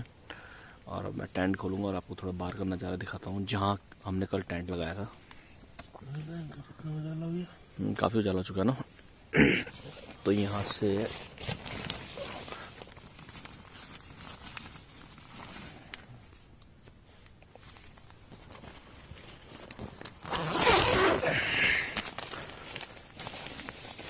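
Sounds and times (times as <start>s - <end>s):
tent fabric rustling: 9.7s - 24.0s
tent zipper unzipping: 20.1s - 22.2s.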